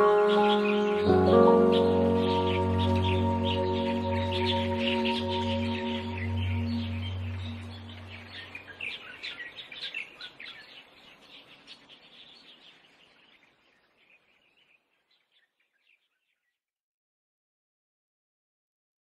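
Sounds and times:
soft sustained drone: 0:00.0 - 0:08.6
birds chirping: 0:00.0 - 0:16.6.

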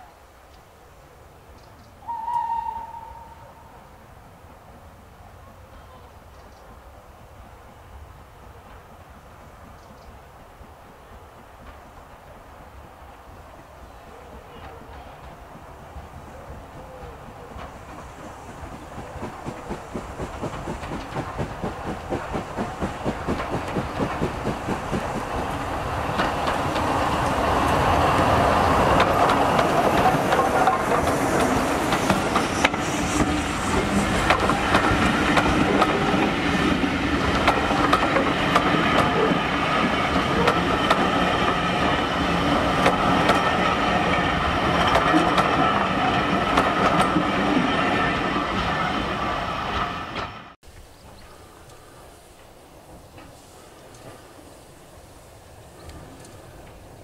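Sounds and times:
train wheels clicking over rail joints: 0:14.5 - 0:48.8, 0:51.0 - 0:54.8
steam locomotive exhaust beats: 0:14.5 - 0:49.3.

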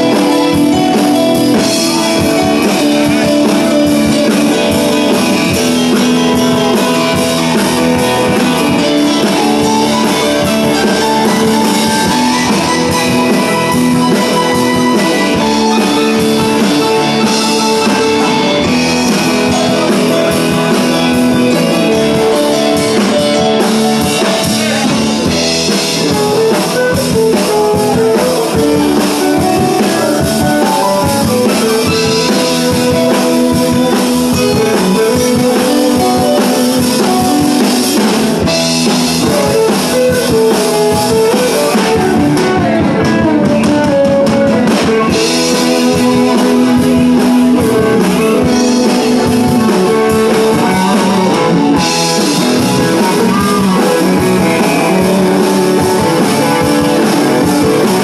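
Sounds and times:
blues-rock band playing: 0:00.0 - 0:58.0
harmonica: 0:00.0 - 0:58.0.

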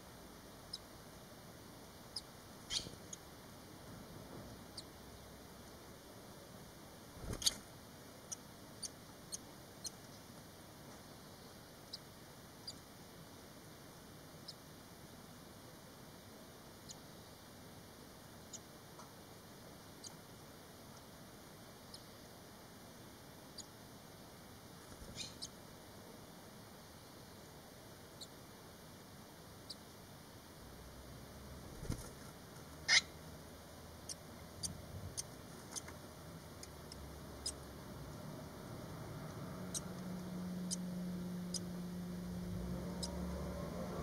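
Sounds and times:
low steady hum: 0:00.0 - 0:44.0
nestling birds squeaking: 0:02.2 - 0:03.3, 0:07.2 - 0:07.6, 0:24.9 - 0:25.6, 0:32.8 - 0:33.2, 0:34.0 - 0:37.7.

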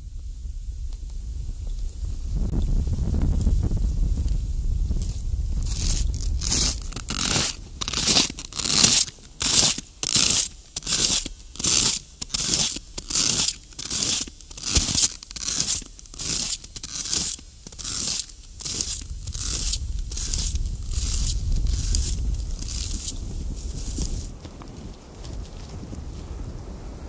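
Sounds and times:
wind rumble on microphone: 0:00.0 - 0:08.8, 0:18.3 - 0:27.0
footsteps crunching through snow: 0:03.0 - 0:26.5.

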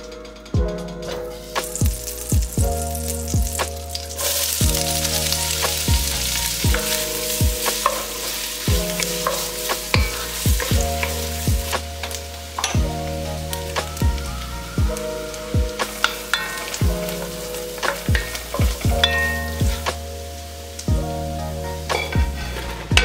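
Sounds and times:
music with kick-drum beat: 0:00.1 - 0:03.9, 0:04.6 - 0:04.9, 0:05.6 - 0:12.0, 0:12.7 - 0:13.1, 0:13.8 - 0:16.2, 0:16.8 - 0:17.1, 0:17.8 - 0:20.0, 0:20.9 - 0:21.2, 0:21.9 - 0:23.0
onion sizzling in butter: 0:01.6 - 0:14.0, 0:15.2 - 0:20.9.

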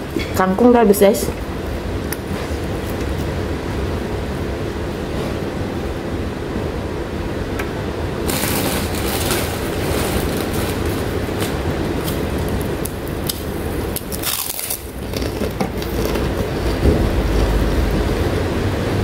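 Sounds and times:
crunchy chewing: 0:08.3 - 0:17.7.

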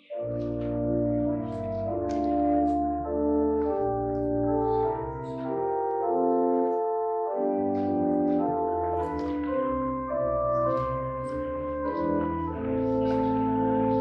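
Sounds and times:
organ playing slow chords: 0:00.0 - 0:14.0.

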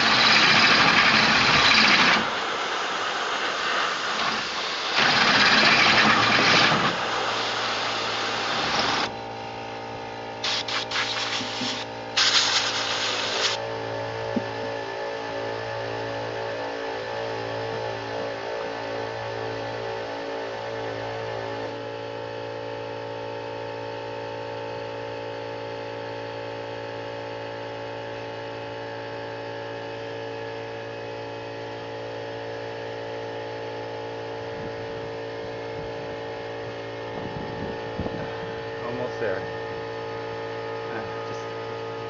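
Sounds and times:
compressed air blowing: 0:00.0 - 0:09.2, 0:10.4 - 0:13.6
electric drill boring through steel: 0:00.0 - 0:09.2, 0:10.4 - 0:13.6
air compressor pulsing hum: 0:00.0 - 0:42.0.

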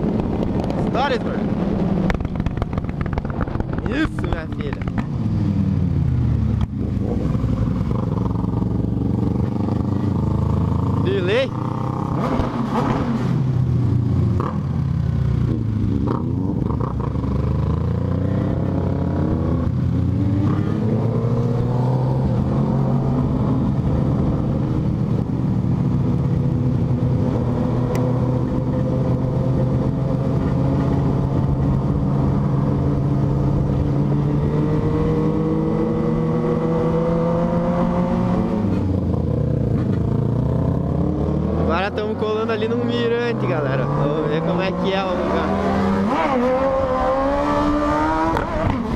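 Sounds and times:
motorcycle engine running: 0:01.4 - 0:12.2.

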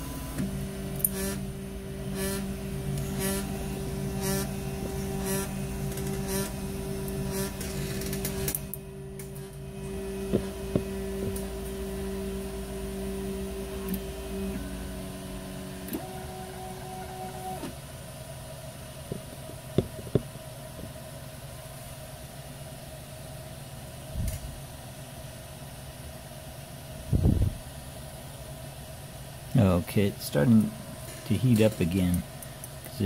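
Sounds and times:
stepper motors whining: 0:00.0 - 0:17.8.

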